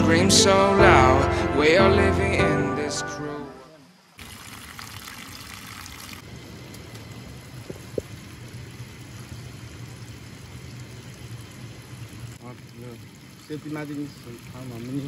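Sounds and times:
stream flowing over rocks: 4.1 - 15.0.

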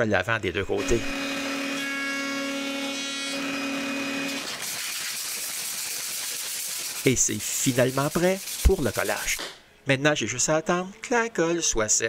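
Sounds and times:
router humming: 0.7 - 4.8
orbital sander sanding wood: 2.5 - 9.4.

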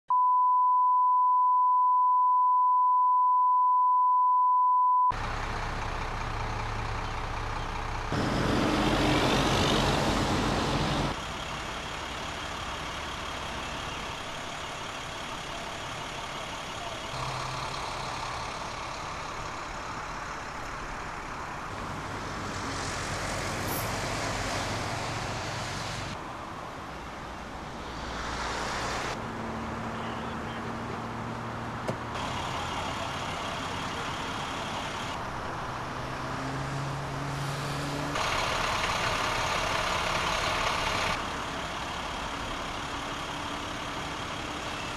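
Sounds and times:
road traffic noise: 5.1 - 44.9
vehicle passing: 35.3 - 41.1.

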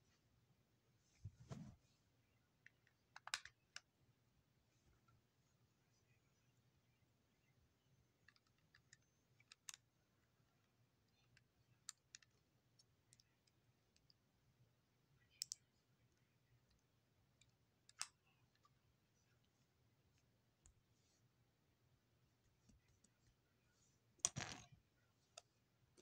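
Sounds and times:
faint clicks and taps: 22.4 - 23.5.

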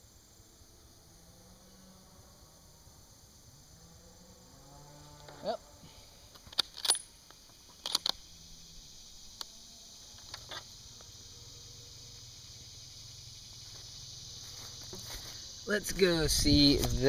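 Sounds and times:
insects droning: 0.0 - 17.0
rifle metallic clicks and knocks: 6.4 - 7.1, 7.7 - 8.2.

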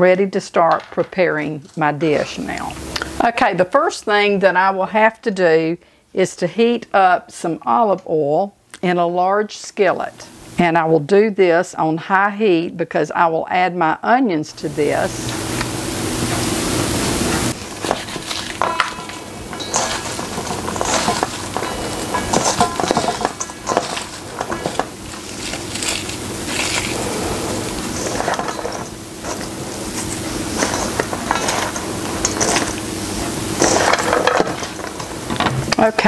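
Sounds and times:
onion slices rustling: 16.5 - 35.6.

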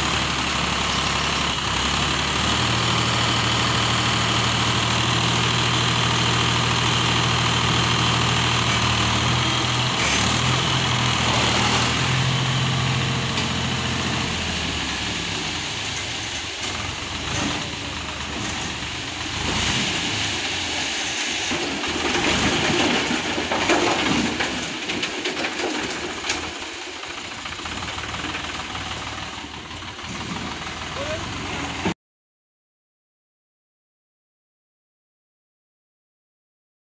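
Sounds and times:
tractor diesel engine running: 0.0 - 31.9
engine knocking: 25.2 - 31.8.

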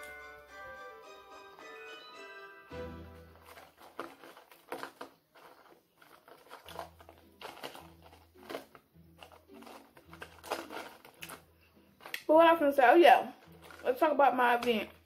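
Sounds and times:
paper box crinkling: 3.1 - 12.1, 13.3 - 14.1.

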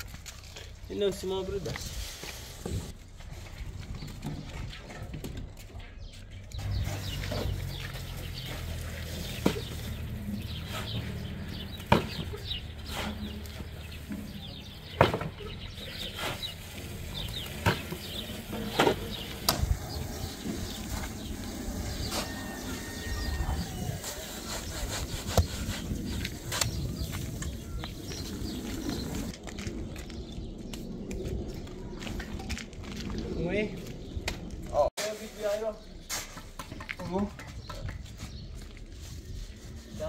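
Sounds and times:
shovel scraping sand and cement: 1.4 - 3.0, 6.6 - 14.8, 15.7 - 29.3, 35.0 - 36.5.

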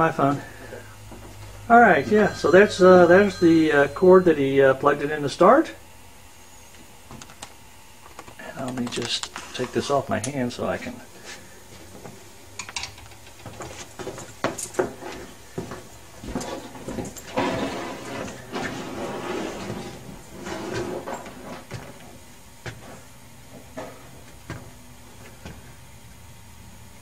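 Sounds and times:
generator machine hum: 0.0 - 27.0
handling clicks and rustling: 8.1 - 10.4.

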